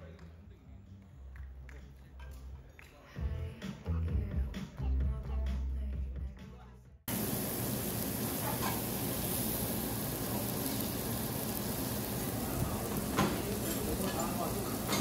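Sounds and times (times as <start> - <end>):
food frying sizzle: 7.1 - 15.0.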